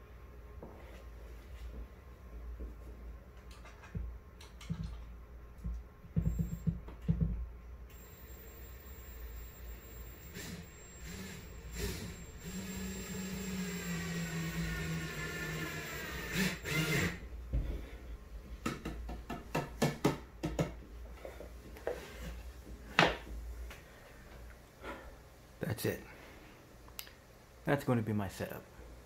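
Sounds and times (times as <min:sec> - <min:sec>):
power tool motor running: 0:07.9 - 0:17.2.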